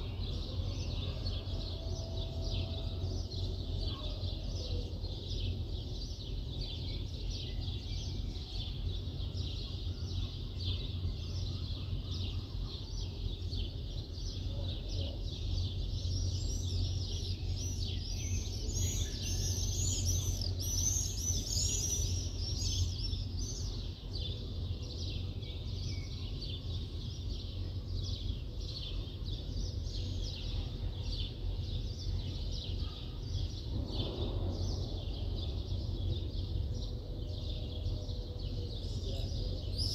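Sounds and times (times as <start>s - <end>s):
low city rumble: 0.0s - 39.9s
birds chirping: 10.2s - 39.9s.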